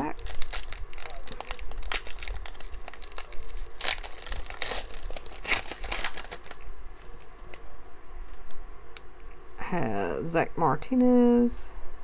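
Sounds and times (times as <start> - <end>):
foil wrapper crinkling: 0.0 - 7.6.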